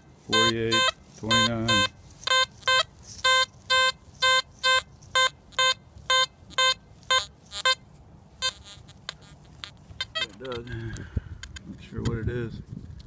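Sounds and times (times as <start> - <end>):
person speaking: 0.2 - 3.4, 10.0 - 12.5
metal detector beeps: 0.3 - 10.7.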